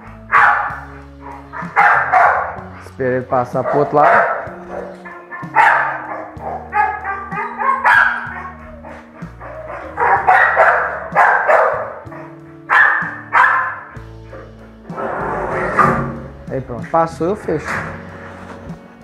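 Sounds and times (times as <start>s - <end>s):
dog barking: 0.3s - 2.7s, 3.6s - 14.5s.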